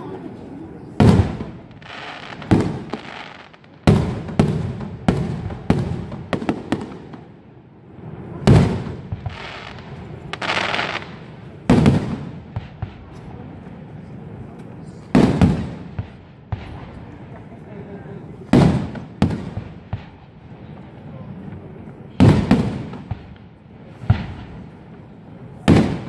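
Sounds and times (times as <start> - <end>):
hissing crackle of firework stars: 0.8 - 26.0
firework shells booming: 1.0 - 7.4, 8.4 - 13.2, 15.1 - 17.1, 18.4 - 20.2, 21.5 - 26.0.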